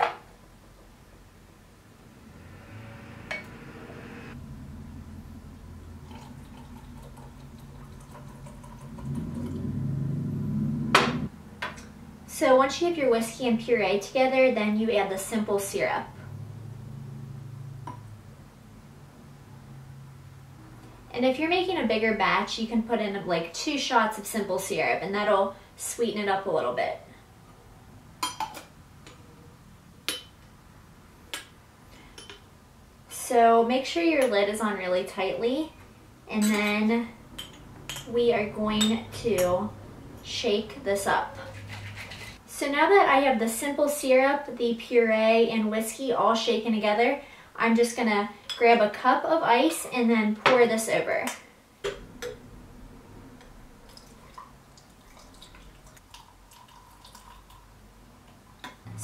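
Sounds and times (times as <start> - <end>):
low steady hum: 0.3 - 45.3
liquid pouring into metal shaker: 6.0 - 9.6, 53.8 - 57.7.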